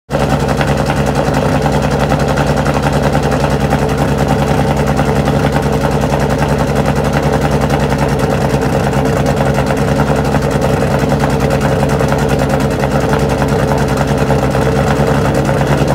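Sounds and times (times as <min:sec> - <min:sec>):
car engine idling: 0:00.1 - 0:15.9.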